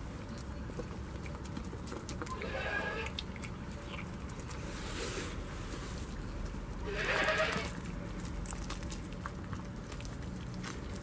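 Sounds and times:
goat chewing clicks: 0.2s - 4.6s, 7.2s - 11.0s
goat bleating: 2.3s - 3.2s, 6.8s - 7.8s.

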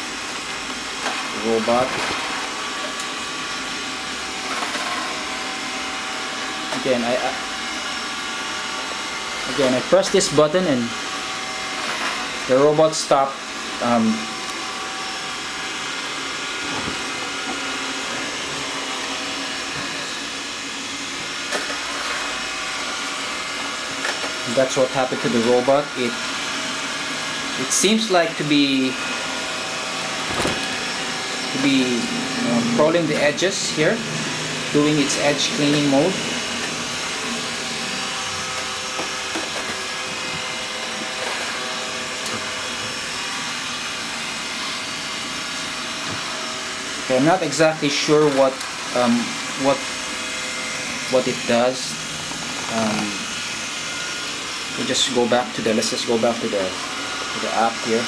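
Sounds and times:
robot vacuum running: 0.0s - 58.0s.

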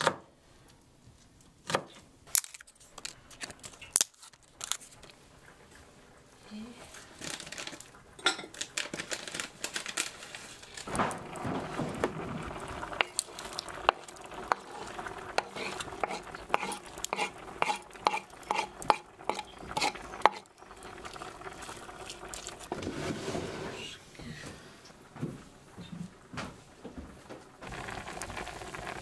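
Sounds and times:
wooden spatula scraping frying pan: 7.1s - 24.8s.

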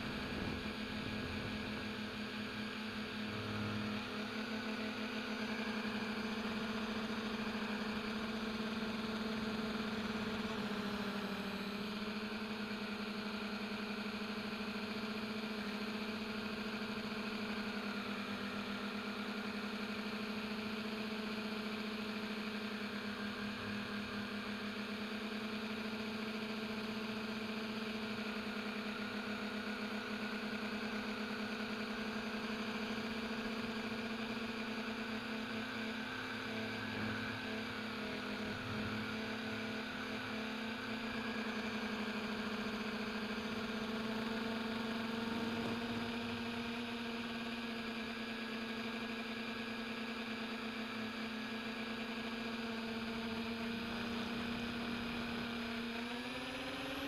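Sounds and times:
drone motors humming: 0.0s - 19.7s, 27.9s - 48.3s.

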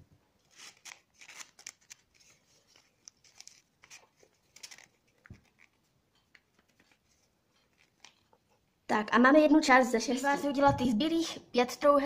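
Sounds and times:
paper rustling and crinkling: 0.4s - 8.6s.

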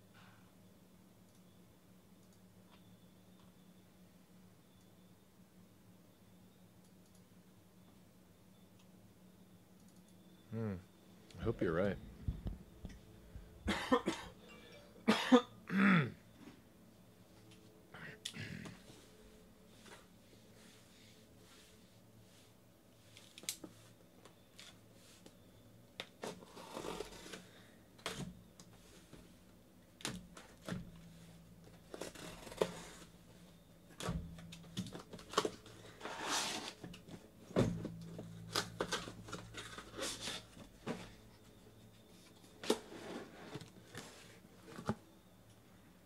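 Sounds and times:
cardboard scraping and tearing: 26.3s - 27.4s, 31.9s - 33.1s, 36.0s - 36.8s.

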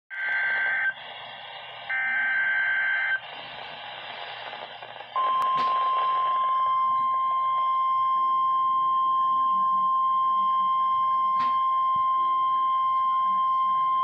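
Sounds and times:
radio hiss: 0.1s - 7.4s
steady warning alarm tone: 1.8s - 3.6s, 4.4s - 14.0s.

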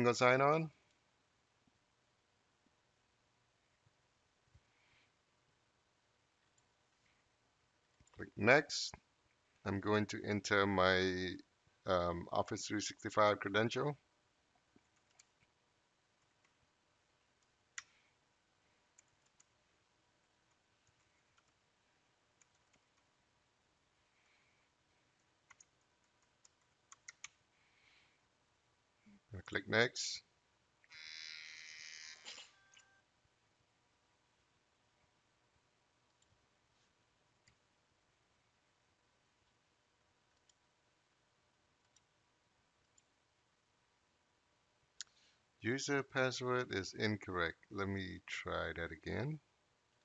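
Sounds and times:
faint clicks: 14.7s - 15.6s, 17.3s - 18.1s, 18.9s - 19.6s, 20.2s - 21.6s, 22.4s - 23.1s, 25.2s - 27.4s, 40.3s - 40.7s, 41.8s - 42.1s, 42.8s - 43.2s, 45.0s - 45.2s.

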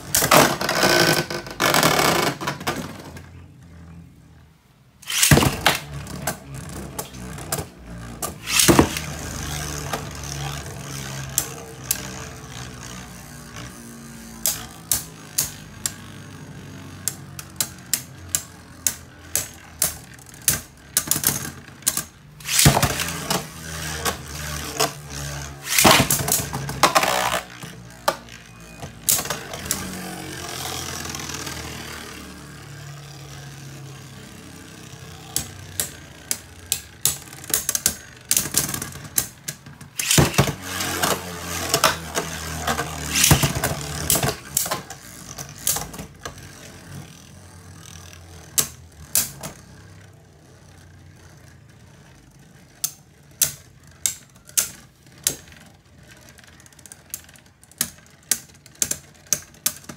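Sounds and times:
spinning tops whirring: 0.0s - 59.9s
plastic clacks of tops colliding: 5.0s - 12.2s, 16.9s - 31.4s, 35.2s - 46.4s.

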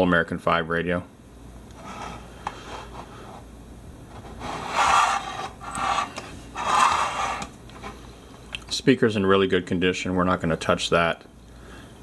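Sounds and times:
metal chassis scraping on wood: 4.4s - 7.5s.

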